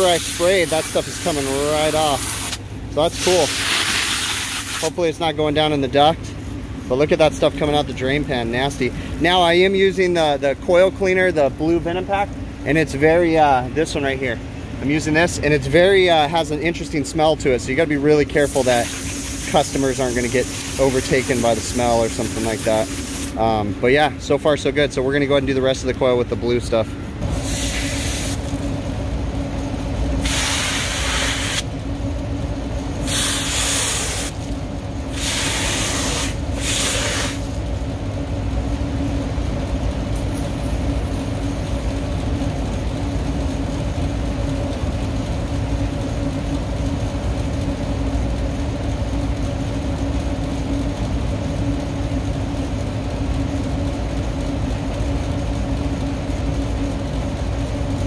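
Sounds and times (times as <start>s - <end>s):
hand pump sprayer hissing: 0.0s - 5.2s, 18.4s - 23.4s, 27.3s - 28.6s, 30.2s - 31.7s, 33.0s - 34.4s, 35.1s - 37.6s
low machine hum: 0.0s - 58.0s.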